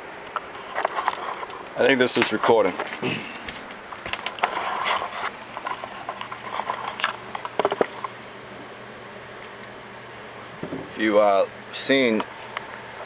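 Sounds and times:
faint steady hum: 0.0 - 13.0
camera handling scrapes and clicks: 4.1 - 8.2.

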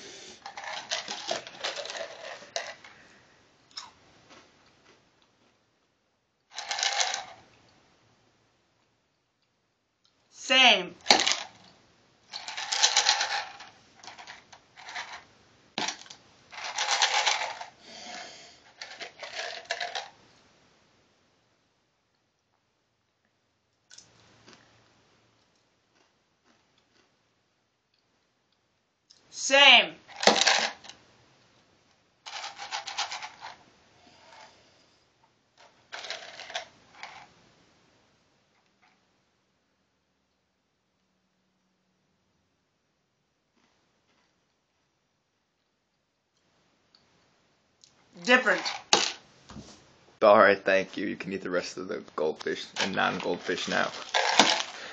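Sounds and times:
crackers rattling in a cup: 0.4 - 3.0, 6.5 - 7.4, 11.0 - 11.7, 12.3 - 20.2, 30.1 - 31.0, 32.3 - 33.6, 35.6 - 37.3, 48.2 - 49.2, 52.4 - 54.9
crunchy crackers being chewed: 3.7 - 5.0, 25.4 - 27.2, 52.9 - 54.9.

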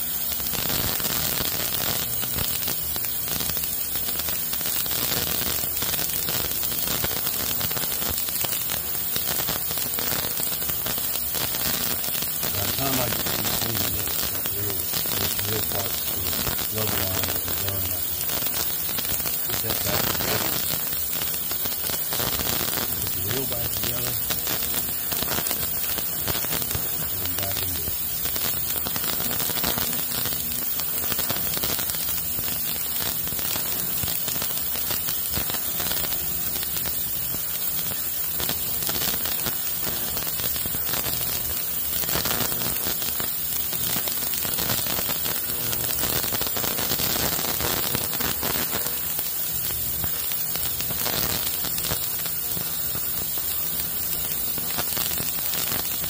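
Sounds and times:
static hiss: 0.0 - 56.0.

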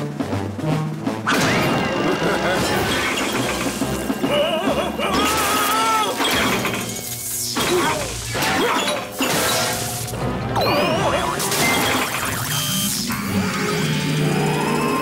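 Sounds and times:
fast chase music: 0.0 - 6.9
crashing and smashing effects: 1.3 - 13.1.

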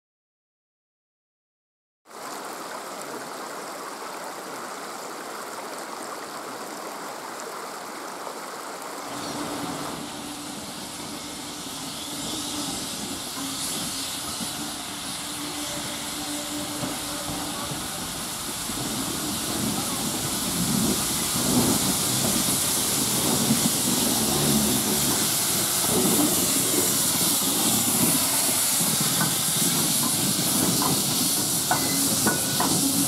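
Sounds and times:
stream rushing: 2.1 - 33.0
steam locomotive hissing: 9.0 - 33.0.

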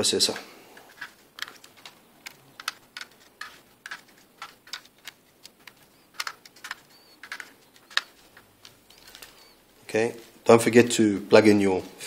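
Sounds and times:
screwdriver clicking on screws: 0.8 - 9.5.

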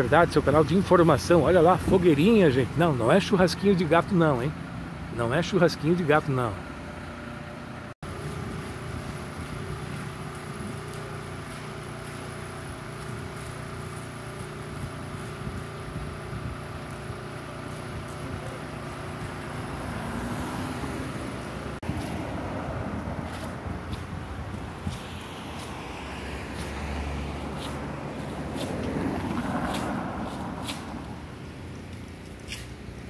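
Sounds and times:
car driving past: 19.4 - 23.7, 25.0 - 31.2
wind on microphone: 21.8 - 25.8.

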